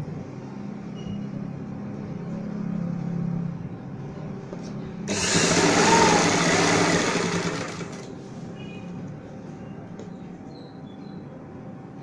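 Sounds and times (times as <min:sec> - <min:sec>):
sewing machine stitching: 0:05.1 - 0:08.1
sewing machine motor hum: 0:05.1 - 0:08.2.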